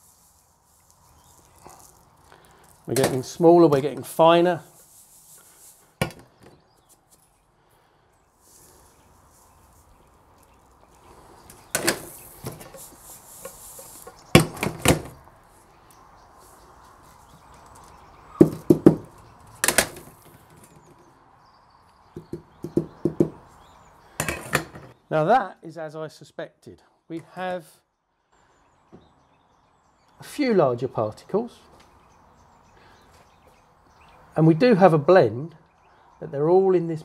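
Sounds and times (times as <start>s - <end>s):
sand rustling in mesh: 0.0s - 6.0s, 8.2s - 14.4s, 15.2s - 18.4s.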